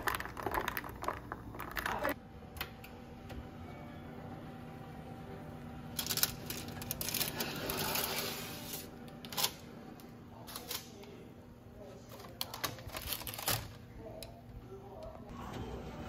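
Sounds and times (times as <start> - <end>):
low steady hum: 0.0 - 16.0
baking tray scraping on rack: 7.1 - 9.0.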